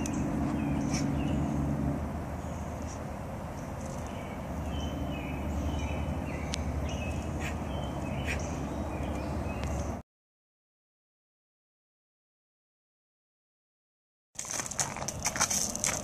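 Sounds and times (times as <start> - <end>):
small birds chirping: 0.0 - 10.0
steady low rumble: 0.0 - 10.0.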